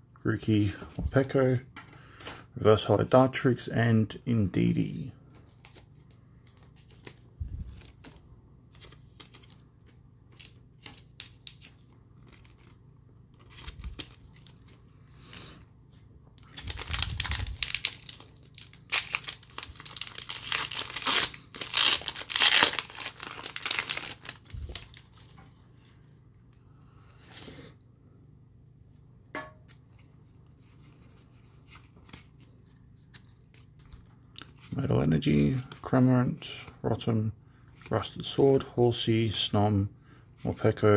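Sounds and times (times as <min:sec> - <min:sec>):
foil wrapper crinkling and tearing: 0:16.4 - 0:25.3.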